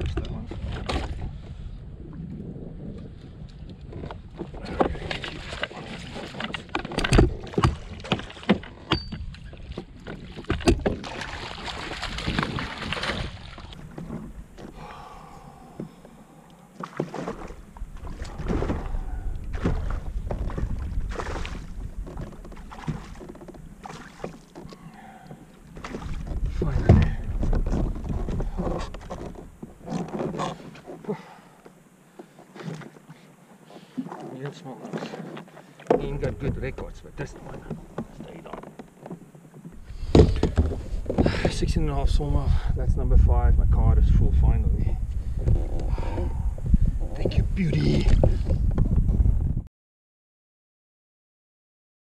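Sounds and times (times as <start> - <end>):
low rumble on microphone: 0.0 - 6.2, 17.4 - 23.8, 24.8 - 29.9, 39.8 - 49.7
wind noise: 0.0 - 8.3, 8.9 - 16.0, 17.3 - 23.9, 25.8 - 29.8, 39.8 - 49.7
gear knocking in a kayak: 2.9 - 16.2, 16.8 - 41.7, 45.1 - 49.6.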